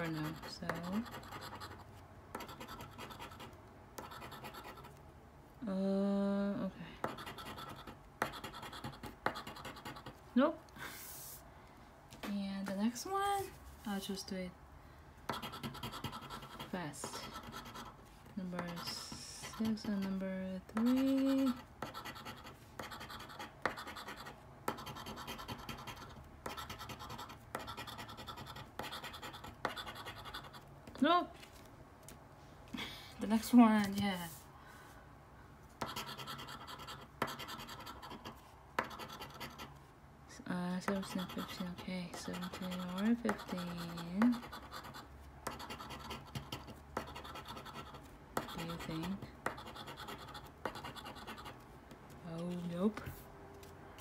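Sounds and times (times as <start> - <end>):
token scratching lottery ticket: 0.0 - 1.8, 2.4 - 4.9, 7.1 - 10.2, 15.3 - 18.0, 20.8 - 30.6, 35.8 - 39.7, 40.9 - 51.6.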